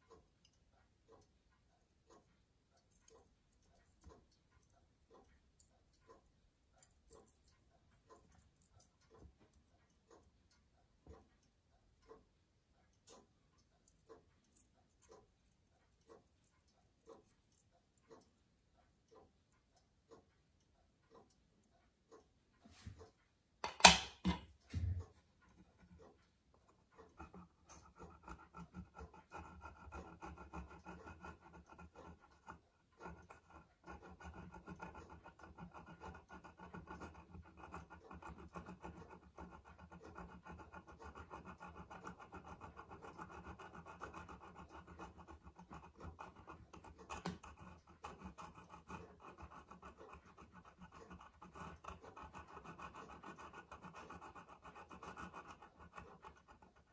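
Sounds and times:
fingers scratching and rubbing metal: 25.5s - 56.9s.

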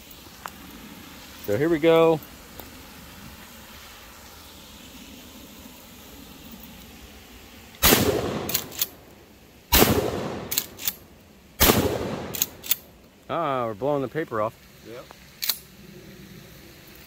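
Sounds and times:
shotgun shots: 7.8s - 9.0s, 9.7s - 11.0s, 11.6s - 12.7s.

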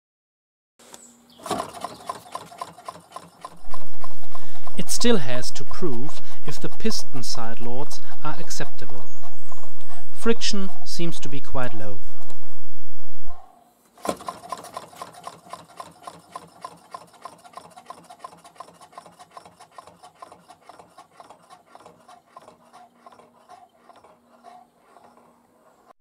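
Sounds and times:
engine drive knock: 1.4s - 9.7s
rapid rhythmic ticking: 1.8s - 9.8s, 14.3s - 25.3s.

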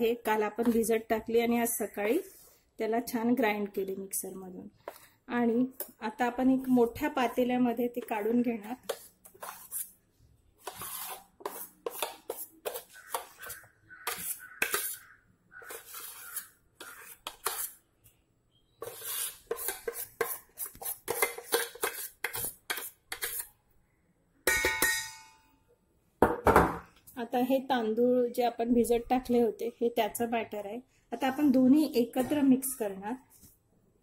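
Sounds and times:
steel spoon scraping steel bowl: 6.8s - 9.9s, 10.6s - 17.8s, 18.8s - 23.5s.

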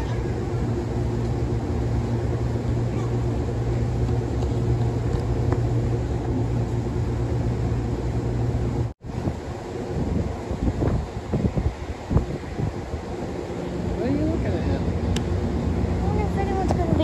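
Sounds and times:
train machinery humming: 0.0s - 17.0s.

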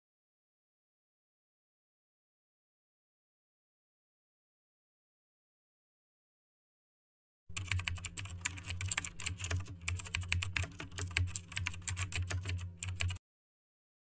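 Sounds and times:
fast typing on computer keyboard: 7.5s - 13.2s.

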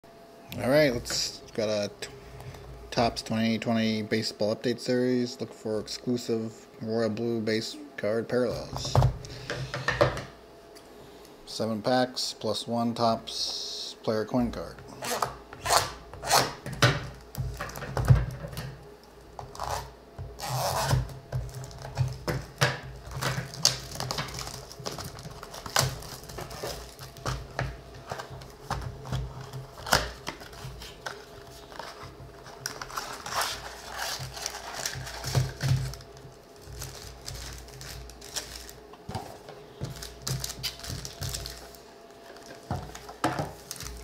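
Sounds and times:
cardboard and foil packs rustling: 20.3s - 44.0s.

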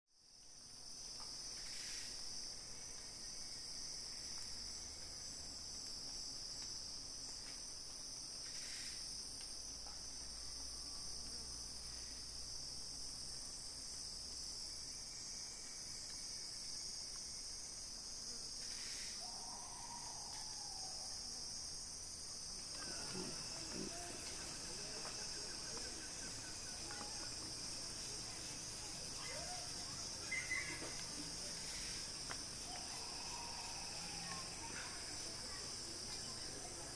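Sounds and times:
forest insects droning: 0.2s - 36.9s
rustles: 18.5s - 36.9s.

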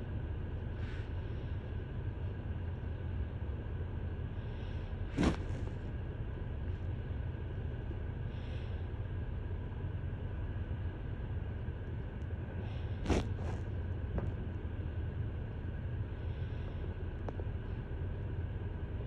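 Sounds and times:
car rumble inside cabin: 1.8s - 8.6s.

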